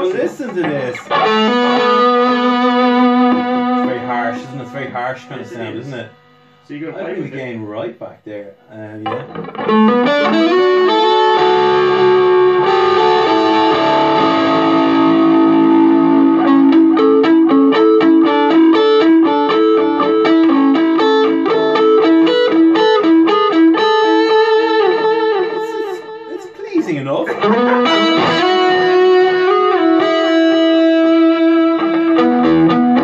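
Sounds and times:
electric guitar playing: 0:00.0 - 0:07.3, 0:08.9 - 0:33.0.

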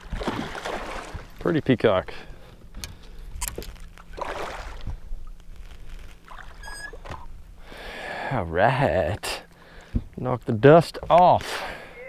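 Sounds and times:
fish thrashing at surface: 0:00.0 - 0:01.4, 0:03.5 - 0:05.0
water splashing against boat: 0:00.0 - 0:07.5.

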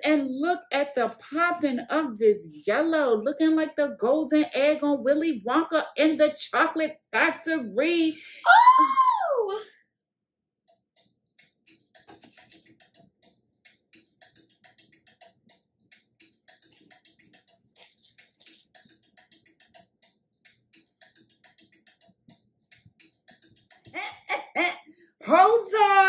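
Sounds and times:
quiet beat-driven music: 0:11.4 - 0:26.0.

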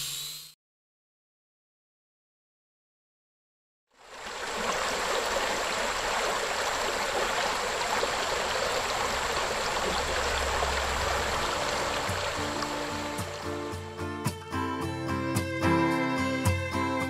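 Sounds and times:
spring water rushing and gurgling: 0:04.0 - 0:14.1.

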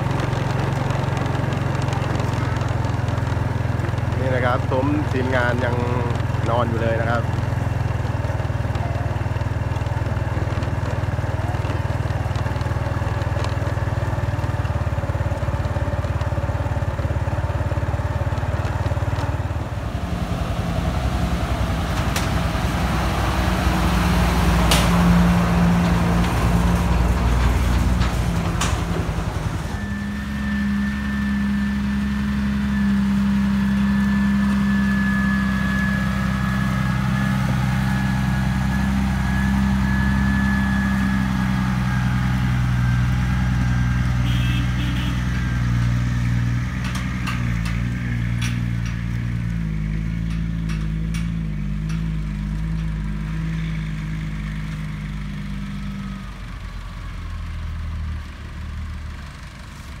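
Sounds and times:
diesel engine running: 0:00.0 - 1:00.0
high whine: 0:19.1 - 0:51.1
sharp clicks and knocks: 0:21.9 - 0:22.9, 0:24.5 - 0:29.9, 0:45.3 - 0:53.2.

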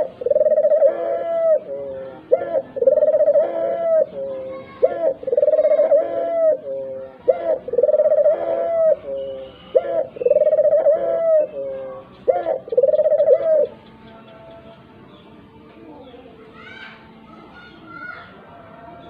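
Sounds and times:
dove cooing: 0:00.0 - 0:14.6.

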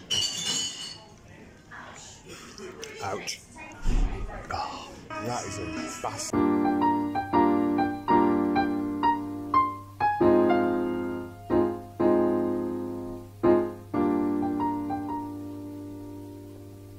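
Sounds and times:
slow keyboard chords: 0:06.3 - 0:16.9.

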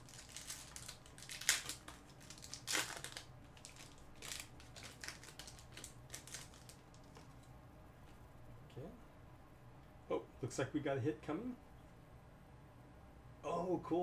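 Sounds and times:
foil wrapper crinkling: 0:00.0 - 0:07.4.

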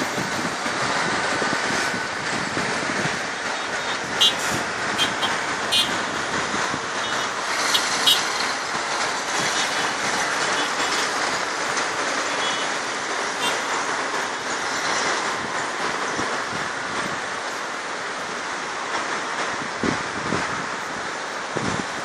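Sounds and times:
road traffic engine and tyre noise: 0:00.0 - 0:22.0
horn toots: 0:04.2 - 0:06.0.

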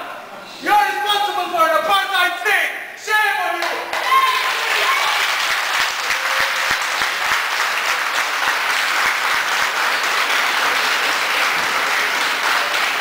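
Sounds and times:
audience applauding: 0:03.6 - 0:13.0.

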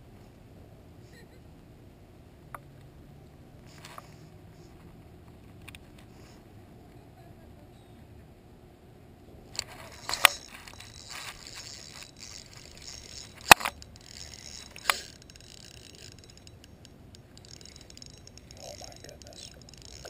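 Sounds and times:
fishing reel line rustling: 0:03.7 - 0:04.8, 0:09.6 - 0:20.0
sharp reel clicks: 0:09.6 - 0:20.0.

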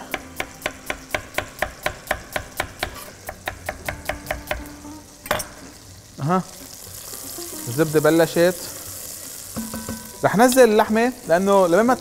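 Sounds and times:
knife slicing onion on board: 0:00.0 - 0:04.7.

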